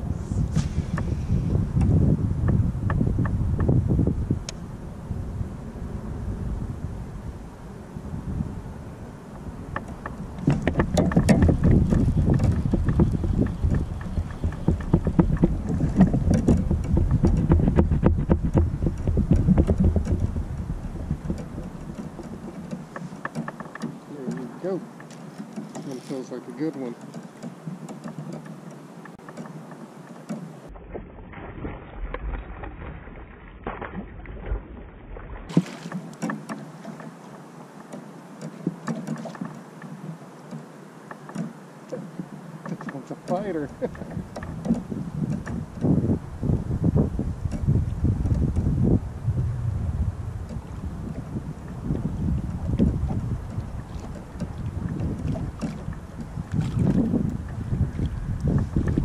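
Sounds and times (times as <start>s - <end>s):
wind rumbling on microphone: 0.0s - 37.5s, 38.4s - 59.0s
water slapping plastic kayak hull: 9.4s - 59.0s
small knocks and clicks: 9.7s - 20.3s, 21.2s - 30.6s, 35.8s - 45.9s, 47.4s - 48.7s
fishing gear clicks and knocks: 21.3s - 30.5s.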